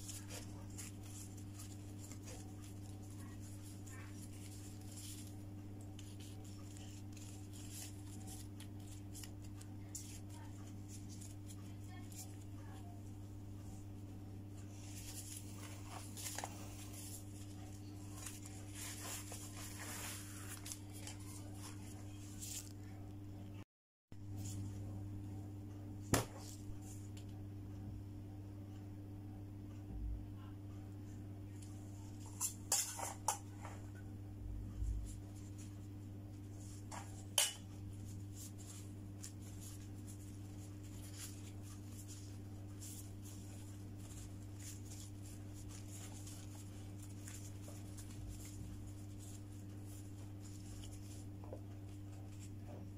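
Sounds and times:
thin wrappers rustling: 0.0s - 12.4s, 14.7s - 22.8s, 36.5s - 52.6s
steady low hum: 0.0s - 23.6s, 24.2s - 52.9s.

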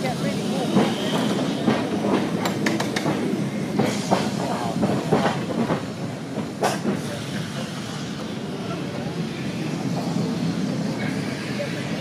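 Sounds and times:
tram rumbling and rattling: 0.0s - 12.0s
wheels clicking on rails: 0.4s - 7.1s.

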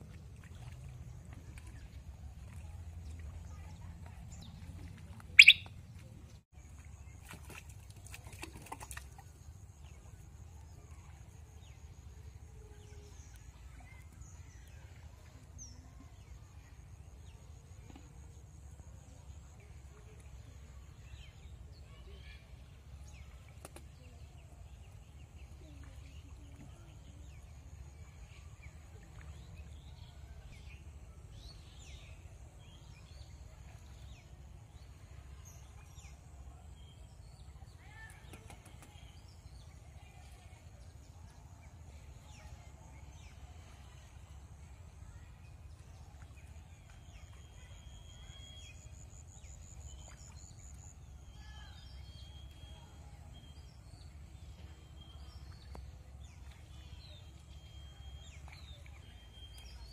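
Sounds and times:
birds chirping: 3.5s - 6.4s.

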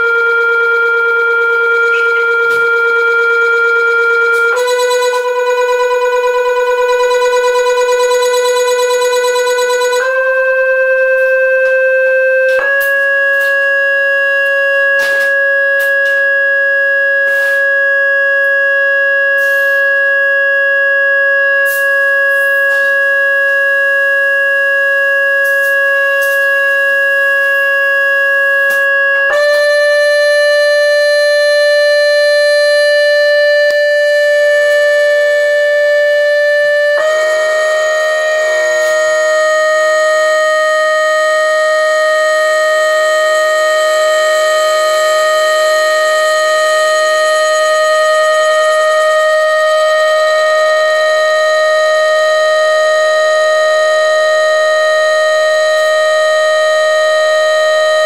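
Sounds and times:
buzzing tones: 0.0s - 16.5s, 25.4s - 51.6s
sine-wave test tone: 0.0s - 58.0s.

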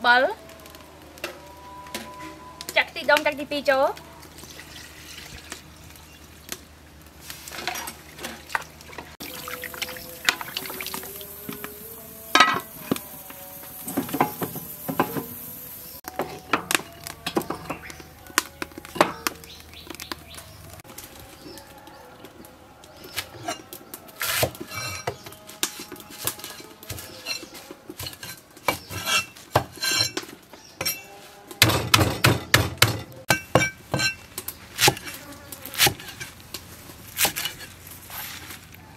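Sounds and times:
liquid pouring: 4.4s - 6.5s, 8.1s - 11.4s
utensils clinking on metal pot: 7.5s - 13.0s, 24.4s - 34.5s.

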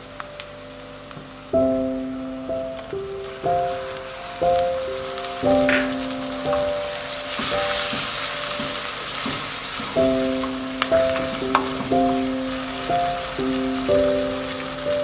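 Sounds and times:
background music sustained notes: 0.0s - 15.0s
vegetables sizzling in hot oil: 0.0s - 15.0s
wooden spoon stirring in pan: 3.2s - 15.0s.

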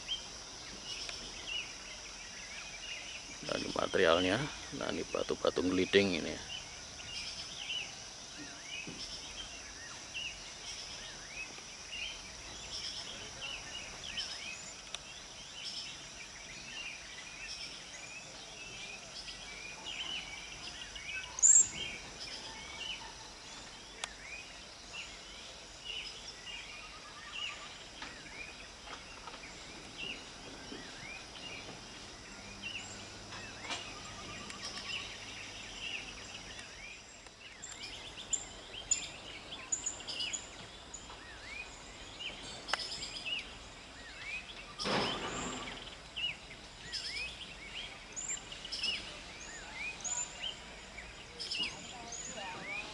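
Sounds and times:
high insect drone: 0.0s - 52.9s
small birds chirping: 0.0s - 52.9s
sharp high bird chirp: 21.2s - 22.0s.

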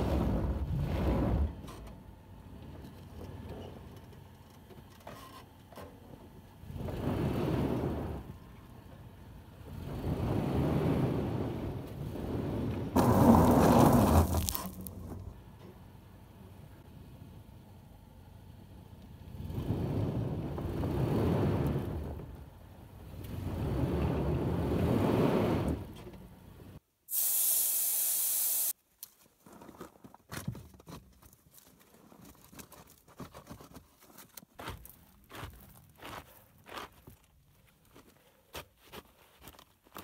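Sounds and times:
wheels spinning on gravel: 9.8s - 15.4s
gravel scraping and clicking: 9.8s - 15.8s, 29.0s - 40.0s
air hissing out of tyre: 27.1s - 28.8s.

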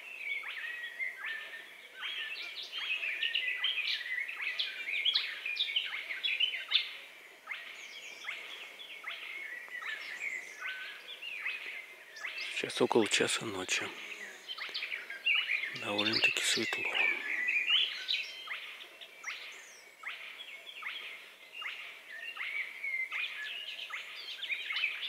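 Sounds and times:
chorus of birds singing: 0.0s - 25.0s
bird short repeated calls: 15.5s - 18.8s.

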